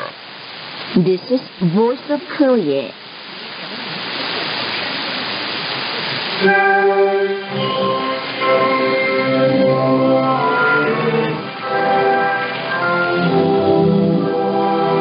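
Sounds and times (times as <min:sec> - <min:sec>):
radio static hiss: 0:00.0 - 0:15.0
orchestral music on radio: 0:06.4 - 0:15.0.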